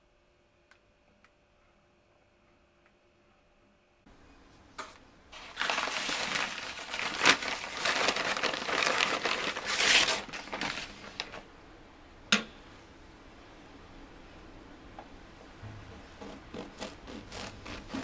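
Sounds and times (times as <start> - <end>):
paper bag crinkling: 5.3 - 11.5.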